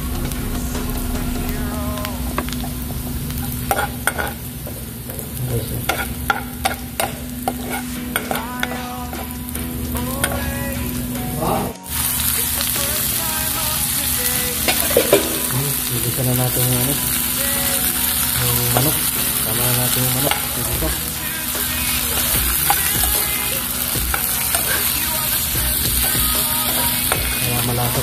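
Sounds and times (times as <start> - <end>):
food sizzling in a frying pan: 0.0 - 28.0
metal spoon scraping a pan: 5.8 - 9.3.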